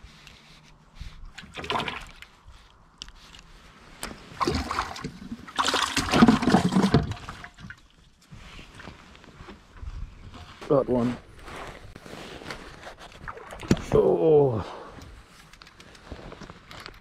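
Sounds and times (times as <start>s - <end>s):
fish splashing in plastic bucket: 1.4s - 2.2s, 4.4s - 7.8s, 13.2s - 13.9s.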